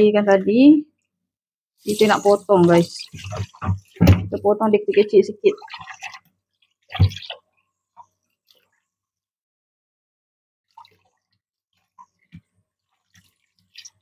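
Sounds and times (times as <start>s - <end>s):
water drips: 1.8s - 9.0s, 10.7s - 14.0s.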